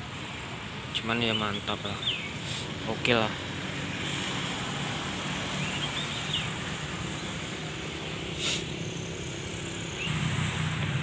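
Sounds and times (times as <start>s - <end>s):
bird chirps: 1.0s - 2.6s, 5.5s - 10.3s.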